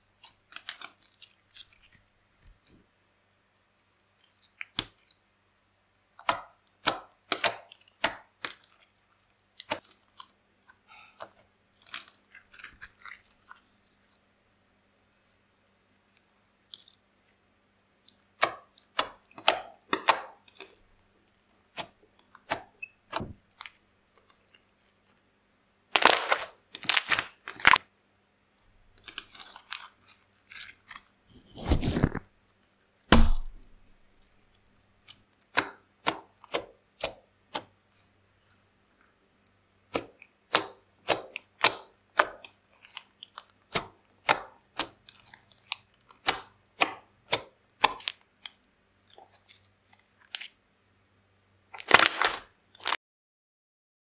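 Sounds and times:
deep slime squishes: 0.0s - 2.9s, 6.0s - 14.2s, 18.0s - 25.1s, 28.9s - 32.3s, 33.1s - 34.2s, 39.8s - 50.6s
slime clicking and popping: 18.1s - 20.8s, 39.9s - 48.6s.

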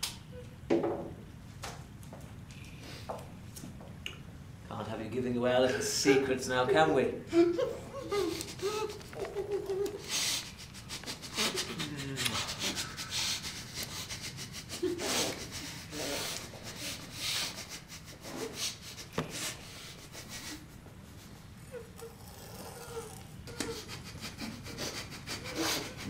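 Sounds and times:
man's muffled groans: 11.4s - 13.0s.

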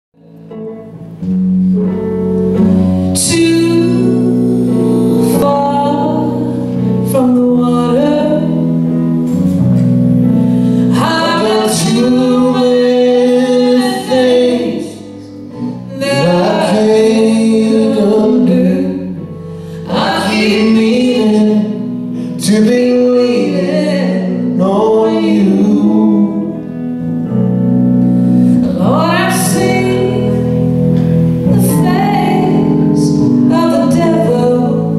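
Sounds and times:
live band playing slow song: 0.2s - 34.9s
person singing: 3.1s - 8.8s, 10.8s - 26.9s, 31.4s - 34.9s.

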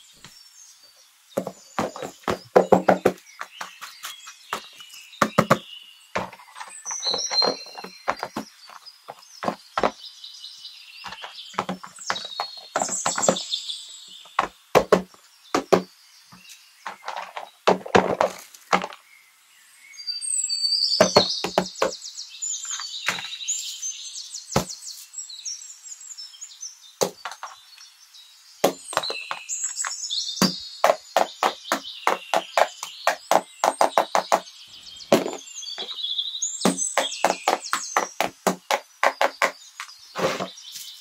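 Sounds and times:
birds chirping: 0.0s - 41.0s
cardboard boxes knocking: 1.4s - 3.8s, 4.5s - 5.6s, 6.2s - 6.4s, 7.1s - 10.0s, 11.1s - 13.5s, 14.4s - 15.9s, 16.9s - 19.0s, 21.0s - 22.0s, 27.0s - 27.5s, 28.6s - 29.4s, 30.4s - 34.4s, 35.1s - 35.9s, 36.6s - 39.6s.

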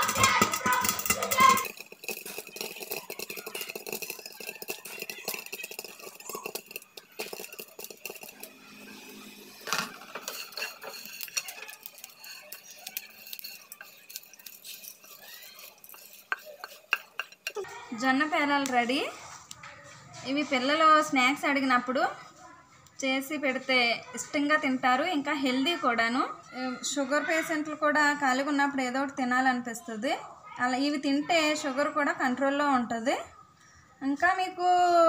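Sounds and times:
grain popping in a pot: 0.0s - 8.6s, 9.6s - 17.6s
spatula stirring grain in a pan: 0.0s - 17.7s.

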